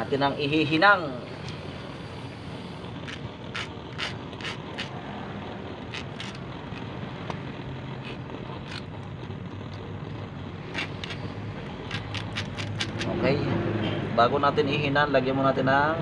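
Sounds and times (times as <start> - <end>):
steady background noise: 0.0 - 16.0
knife scraping metal terminals: 3.0 - 5.0, 5.9 - 6.9, 8.0 - 8.9, 10.6 - 13.1.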